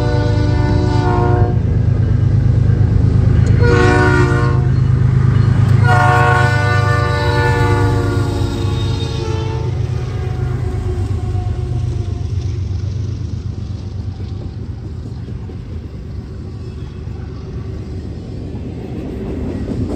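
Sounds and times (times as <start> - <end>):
locomotive air horn blasts: 0.0 - 1.6, 3.5 - 4.8, 5.7 - 11.8
diesel locomotives rumbling: 0.0 - 19.9.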